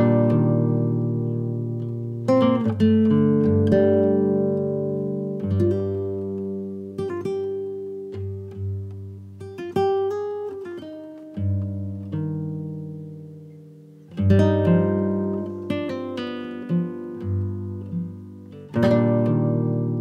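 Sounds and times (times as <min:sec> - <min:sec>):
acoustic guitar plucked: 0:00.0 - 0:20.0.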